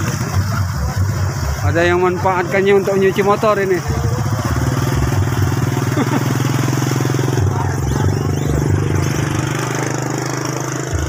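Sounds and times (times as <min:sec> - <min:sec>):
motorcycle engine idling: 0:00.0 - 0:11.0.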